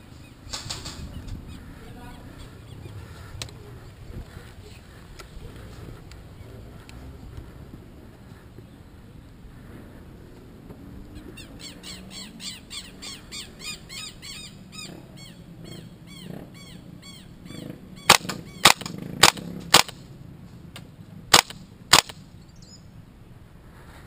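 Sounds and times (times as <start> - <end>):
airsoft rifle shots: 18.1 - 20.1, 21.3 - 22.2
bird chirping: 22.2 - 23.0.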